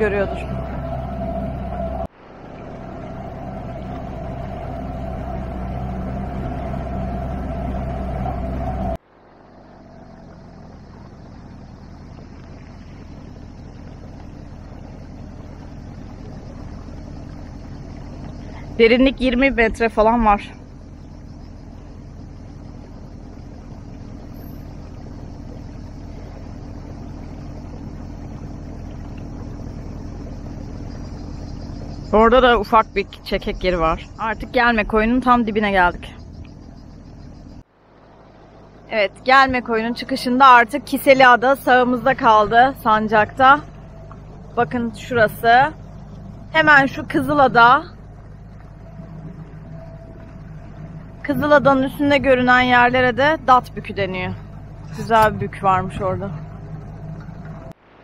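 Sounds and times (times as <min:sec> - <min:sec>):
outboard motor humming: 0:00.0 - 0:58.0
wind: 0:00.0 - 0:58.0.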